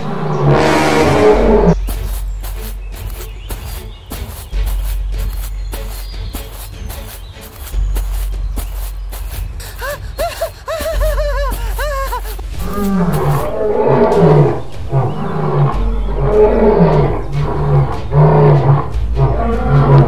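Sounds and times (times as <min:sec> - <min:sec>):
short arching cries: 0:09.6 - 0:13.5
lion roaring: 0:12.6 - 0:20.0.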